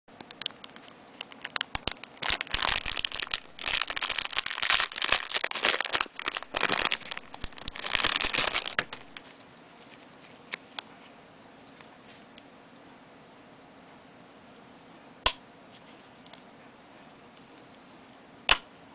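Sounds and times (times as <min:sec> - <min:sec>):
plastic bag crinkling: 0:00.3 - 0:12.4.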